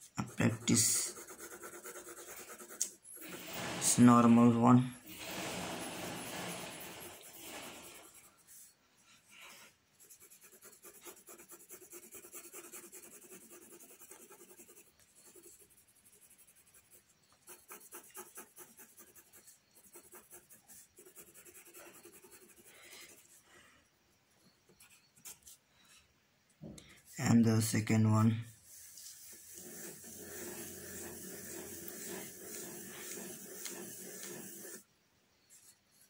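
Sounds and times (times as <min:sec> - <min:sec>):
pencil shading on paper: 0:00.0 - 0:04.5, 0:05.1 - 0:08.7, 0:10.0 - 0:23.4, 0:28.7 - 0:34.8.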